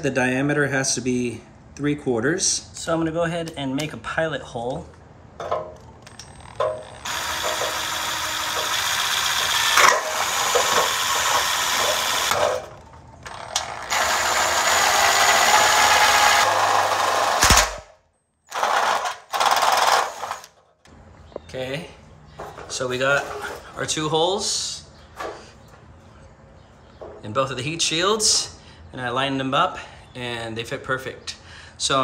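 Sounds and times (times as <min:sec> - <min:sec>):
power drill drilling sheet metal: 0:07.0 - 0:17.8, 0:18.5 - 0:20.5.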